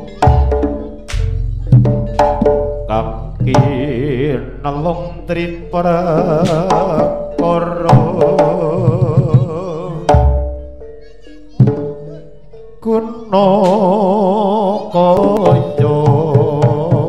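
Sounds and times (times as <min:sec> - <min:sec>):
drum strokes: 0:00.0 - 0:12.5, 0:15.1 - 0:17.0
wavering lead melody: 0:00.0 - 0:16.2.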